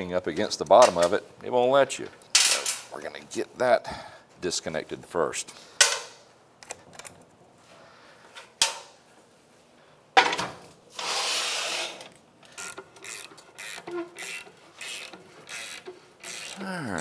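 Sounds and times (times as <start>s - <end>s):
ratchet wrench strokes: 11.0s - 16.6s.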